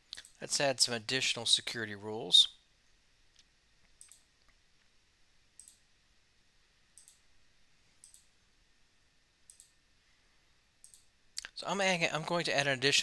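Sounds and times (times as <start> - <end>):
faint computer mouse clicks: 3.4 - 4.6, 5.6 - 5.8, 7.0 - 7.2, 8.0 - 8.3, 9.5 - 9.7.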